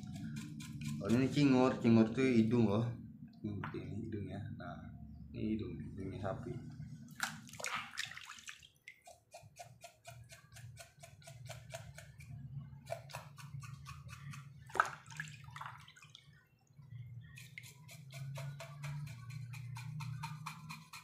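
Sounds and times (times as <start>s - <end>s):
water dripping: 7.1s - 9.2s, 14.7s - 17.7s
water splash: 7.2s - 8.8s, 14.7s - 16.2s.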